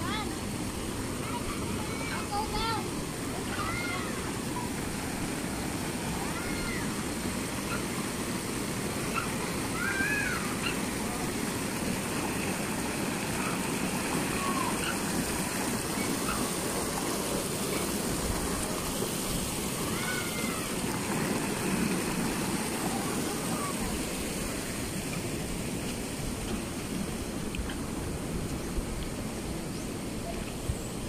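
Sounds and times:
water pouring into pool: 0:11.4 - 0:25.0.

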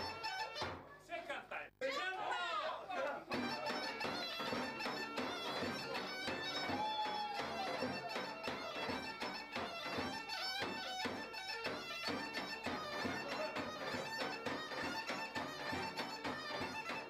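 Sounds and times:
bagpipe melody over drone: 0:03.4 - 0:06.7, 0:07.4 - 0:17.0.

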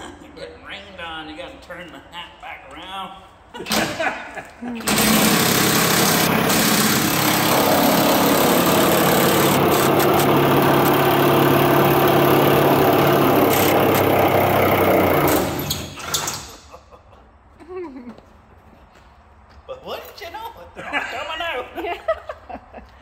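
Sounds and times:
impact wrench running: 0:04.8 - 0:16.2.

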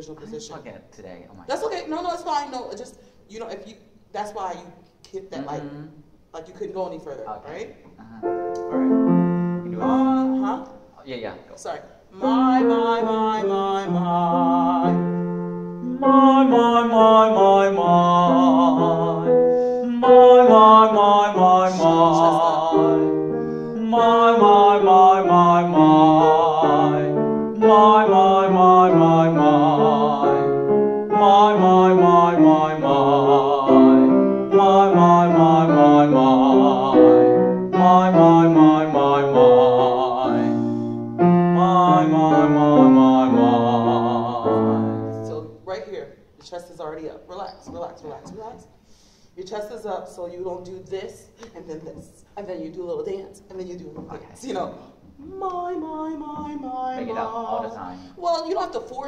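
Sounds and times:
piano accompaniment: 0:08.2 - 0:10.9, 0:12.2 - 0:45.8
person singing scales with vibrato: 0:09.4 - 0:10.8, 0:12.1 - 0:45.6, 0:55.2 - 0:58.2.

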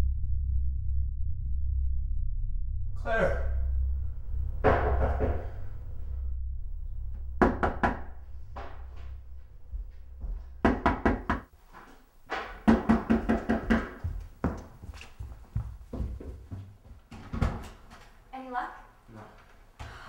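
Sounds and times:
knocking on a door: 0:04.6 - 0:05.6, 0:07.4 - 0:08.8, 0:09.8 - 0:11.5, 0:12.3 - 0:14.6.

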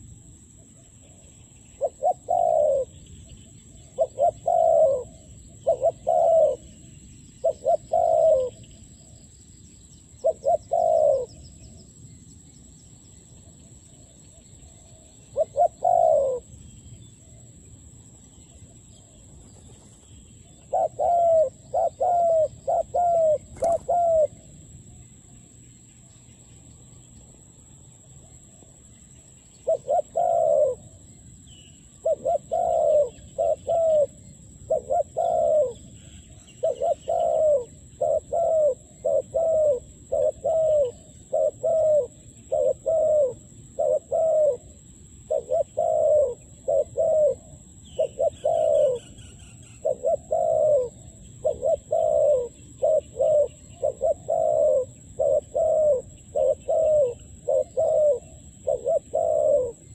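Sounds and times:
small birds chirping: 0:00.0 - 0:27.5, 0:28.1 - 0:59.9
dove cooing: 0:00.7 - 0:09.2, 0:10.1 - 0:11.7, 0:14.2 - 0:16.6, 0:18.6 - 0:24.5, 0:29.6 - 0:31.1, 0:31.8 - 0:59.9.

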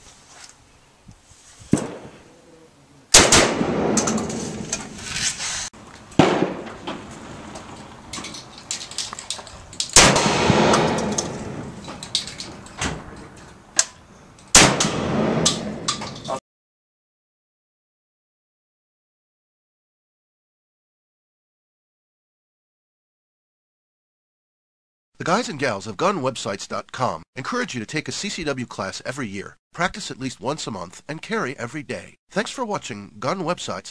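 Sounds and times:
shotgun shots: 0:01.7 - 0:02.2, 0:03.1 - 0:04.8, 0:06.2 - 0:06.9, 0:10.0 - 0:11.8, 0:14.5 - 0:16.0.

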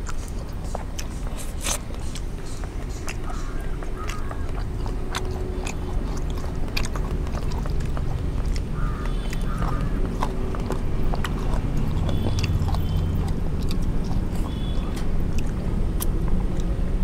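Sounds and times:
people chewing: 0:00.0 - 0:17.0
steady low rumble: 0:00.0 - 0:17.0.

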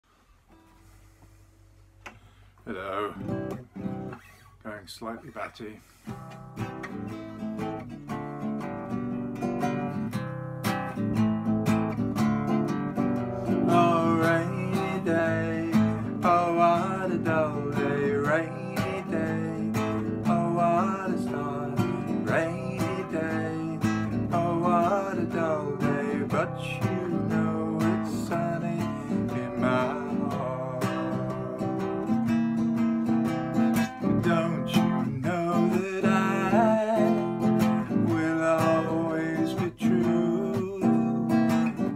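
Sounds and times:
acoustic guitar strumming: 0:00.5 - 0:41.9
man singing: 0:02.6 - 0:03.4, 0:13.6 - 0:32.3, 0:34.0 - 0:41.9.

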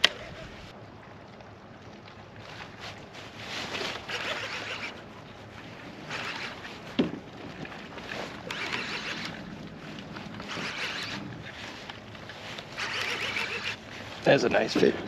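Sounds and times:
fishing reel cranking: 0:04.1 - 0:05.0, 0:06.1 - 0:06.6, 0:08.4 - 0:09.4, 0:10.5 - 0:11.2, 0:12.8 - 0:13.8.

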